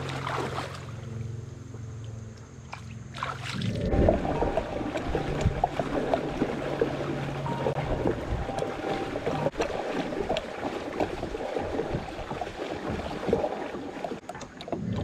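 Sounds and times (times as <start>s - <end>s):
water splashing around kayak: 0.0s - 15.0s
low rumble: 3.6s - 10.4s.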